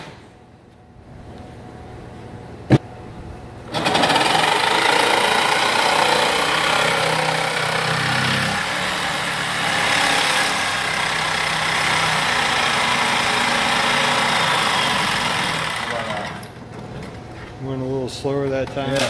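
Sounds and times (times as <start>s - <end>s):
jigsaw sawing wood: 3.7s - 16.5s.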